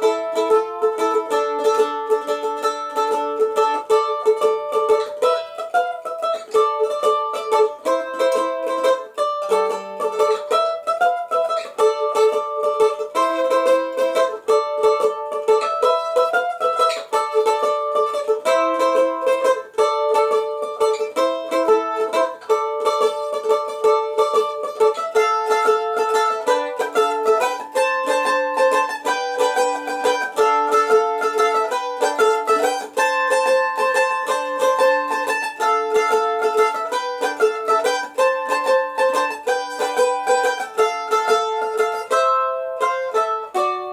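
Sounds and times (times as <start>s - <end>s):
mandolin picked melody: 0.0s - 43.9s.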